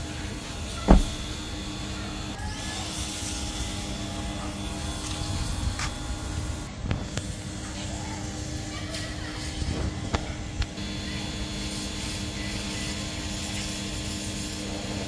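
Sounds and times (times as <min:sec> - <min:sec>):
steady low hum: 0:00.7 - 0:02.4
car door shutting: 0:00.8 - 0:01.6.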